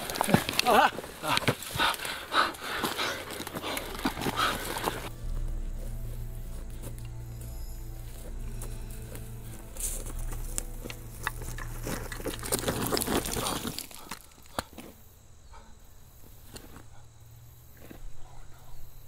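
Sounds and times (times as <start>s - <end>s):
body falling on gravel: 0.0s - 5.1s, 8.2s - 14.8s
background music: 3.1s - 14.0s.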